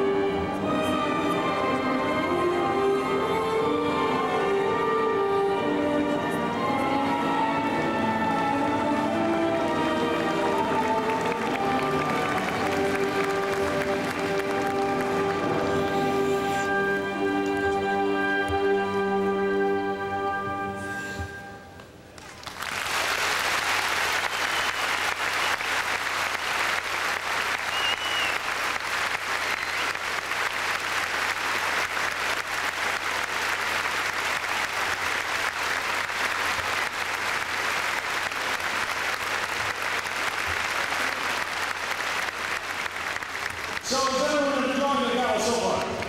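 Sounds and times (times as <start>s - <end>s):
music: 0.0s - 22.2s, 33.5s - 46.0s
audience applause: 7.7s - 16.4s, 22.2s - 46.0s.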